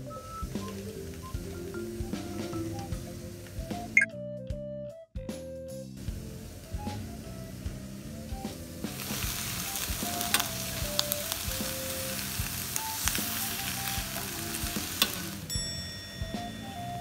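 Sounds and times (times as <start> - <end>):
meat and vegetables sizzling: 0.0 - 4.0, 6.0 - 17.0
light banjo music: 6.0 - 17.0
metal tongs clicking on pan: 9.8 - 11.2, 13.0 - 15.4.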